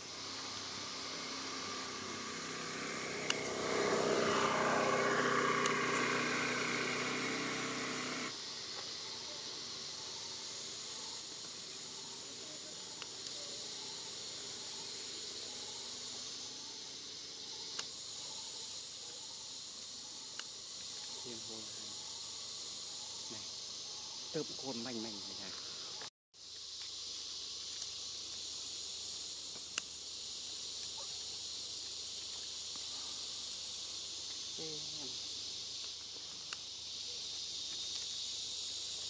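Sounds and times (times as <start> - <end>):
insects hissing: 0.0 - 39.0
loud droning noise: 0.3 - 8.3.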